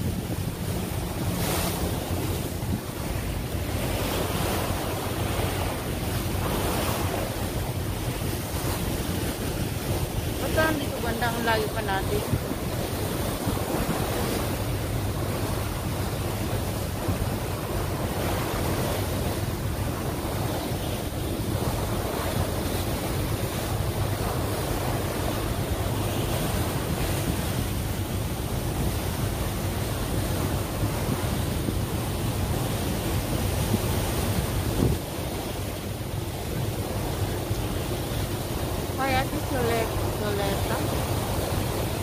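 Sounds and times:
water rushing past a boat: 0:00.0 - 0:42.0
wind buffeting microphone: 0:00.0 - 0:42.0.

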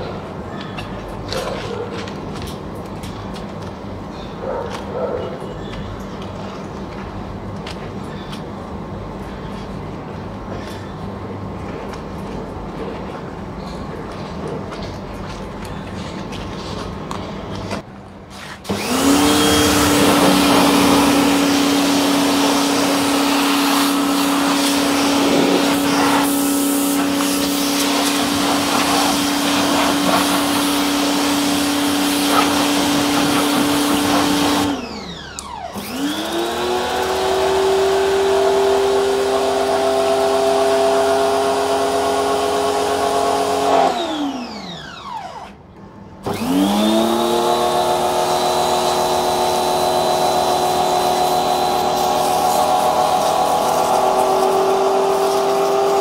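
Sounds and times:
pressure washer motor whine: 0:18.7 - 0:45.6, 0:46.2 - 0:56.0
water spray hiss: 0:50.6 - 0:56.0.

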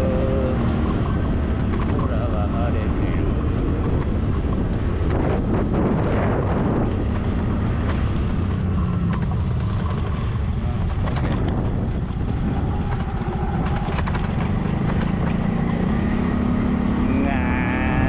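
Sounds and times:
scooter engine drone: 0:00.0 - 0:18.0
wind rushing over microphone: 0:00.0 - 0:18.0.

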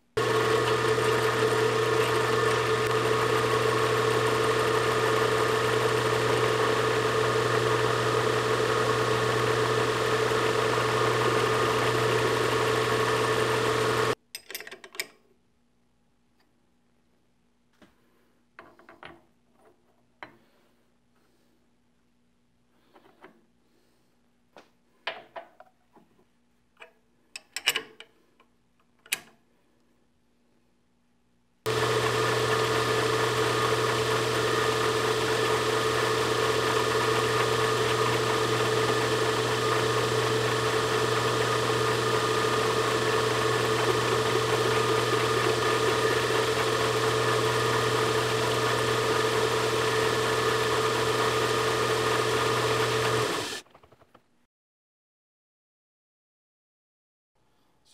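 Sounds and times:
milling machine cutting metal: 0:00.2 - 0:14.2, 0:31.7 - 0:53.6
motor humming: 0:00.2 - 0:14.2, 0:31.7 - 0:53.6.

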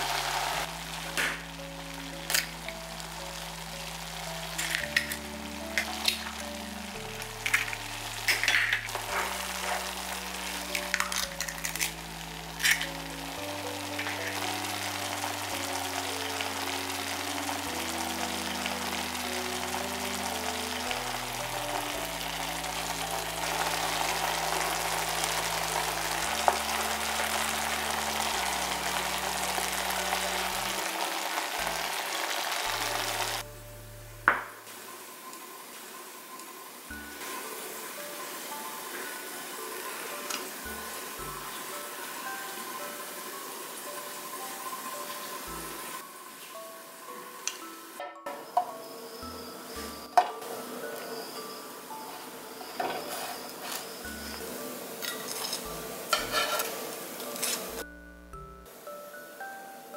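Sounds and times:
sauce bubbling and sizzling in a pan: 0:00.0 - 0:33.5
soft background music: 0:00.0 - 0:59.9
eggshell cracking: 0:02.2 - 0:02.8, 0:04.5 - 0:06.4, 0:10.6 - 0:13.1.

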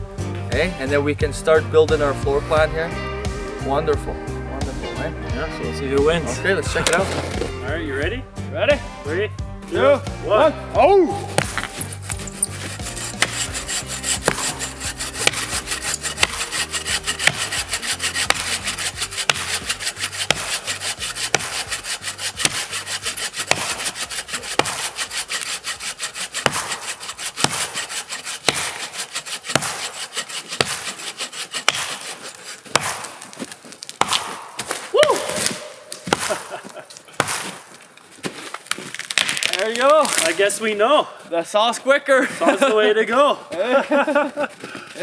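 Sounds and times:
bow saw rasping through log: 0:11.2 - 0:34.8, 0:37.2 - 0:37.7
axe chopping log: 0:11.3 - 0:37.7.

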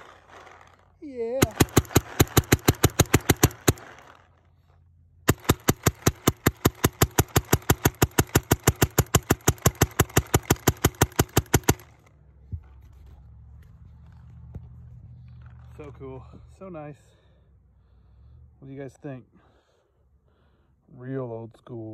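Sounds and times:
paintball marker firing: 0:01.3 - 0:04.1, 0:05.3 - 0:12.1.

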